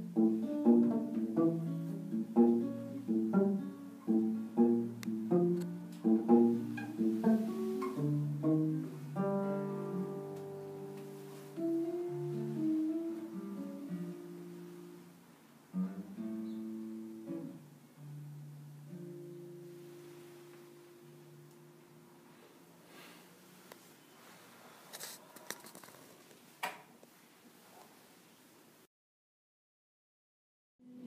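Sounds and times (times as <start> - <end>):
classical guitar playing: 0.0 - 22.4.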